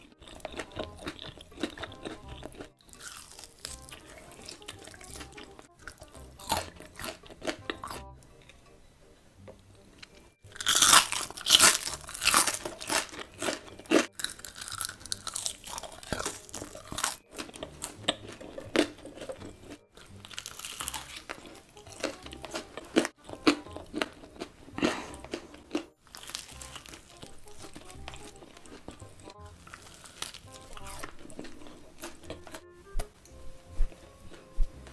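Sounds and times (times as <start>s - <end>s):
crunching and chewing fried food: 0.0s - 8.7s, 9.9s - 34.9s.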